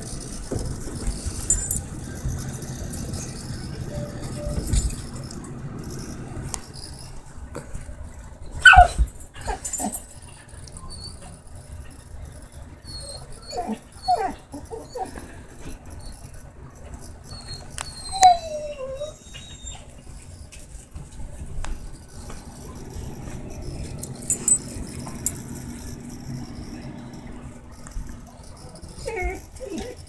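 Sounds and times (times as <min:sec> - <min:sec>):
dog whining: 0:01.1 - 0:06.3, 0:08.6 - 0:10.0, 0:12.8 - 0:16.3, 0:17.3 - 0:20.0, 0:22.2 - 0:30.0
dog yipping: 0:08.6 - 0:10.0, 0:12.9 - 0:15.2, 0:17.3 - 0:20.0, 0:28.3 - 0:30.0.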